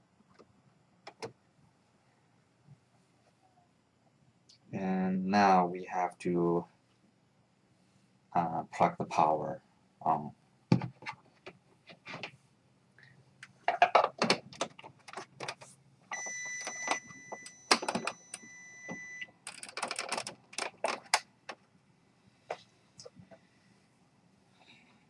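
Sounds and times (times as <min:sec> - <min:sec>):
hands handling a printer: 0:10.7 - 0:12.4, 0:13.5 - 0:21.6.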